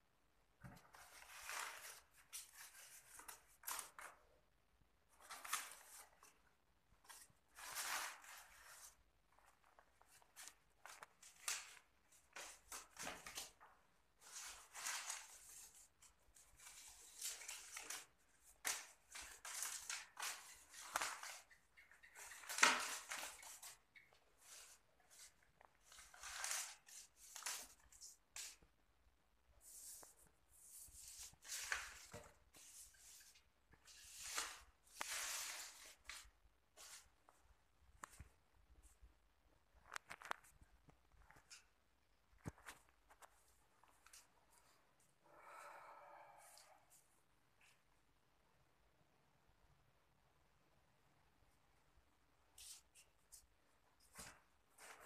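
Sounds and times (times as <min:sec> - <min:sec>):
paper banknotes rustling: 0:09.6 - 0:23.8.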